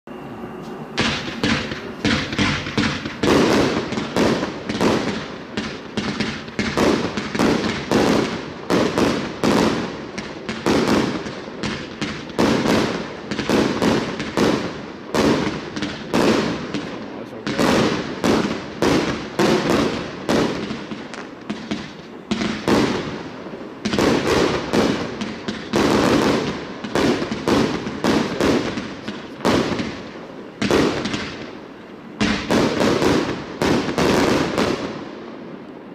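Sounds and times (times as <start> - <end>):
fireworks launching and bursting: 0.4 - 35.9.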